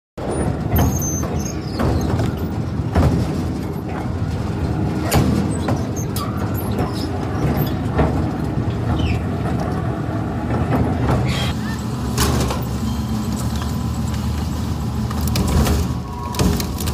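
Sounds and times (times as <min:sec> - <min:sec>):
loud cracks and crunches: 0:15.1 - 0:16.9.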